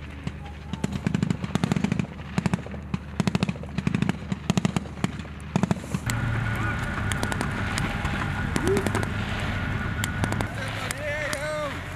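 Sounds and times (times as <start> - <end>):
automatic rifle gunfire bursts: 0.2 - 5.9.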